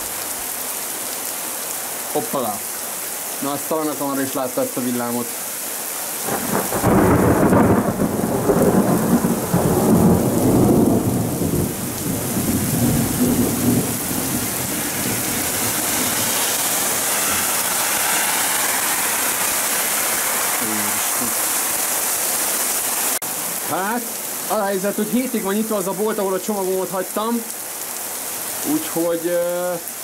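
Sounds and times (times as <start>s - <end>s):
heavy rain pouring: 0.0s - 30.0s
thunder rumbling: 6.2s - 21.9s.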